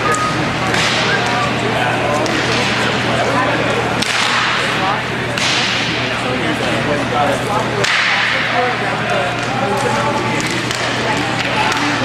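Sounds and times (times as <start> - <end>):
hockey sticks cracking on puck: 0.0 - 1.4, 2.2 - 2.8, 3.6 - 6.0, 7.8 - 8.6, 9.2 - 12.0.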